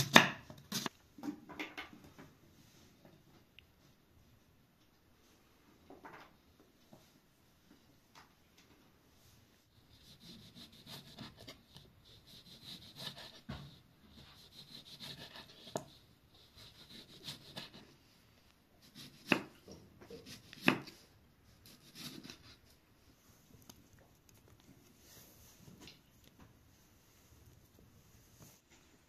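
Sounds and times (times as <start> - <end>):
knife slicing tomatoes on wood: 10.0 - 17.8, 18.8 - 21.0, 21.6 - 22.7.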